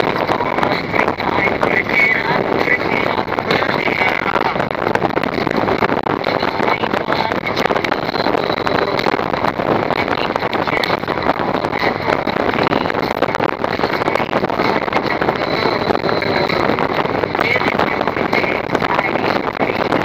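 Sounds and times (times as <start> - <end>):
motorcycle engine running: 0.0 - 20.0
wind buffeting microphone: 0.0 - 20.0.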